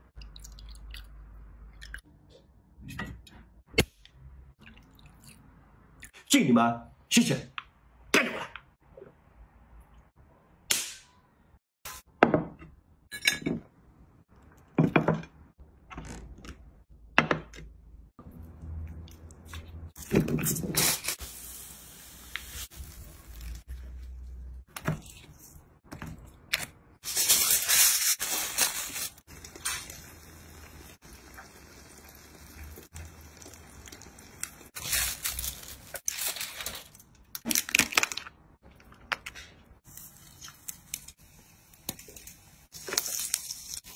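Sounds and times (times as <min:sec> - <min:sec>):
dishes and glass clinking: 0:12.4 - 0:13.7.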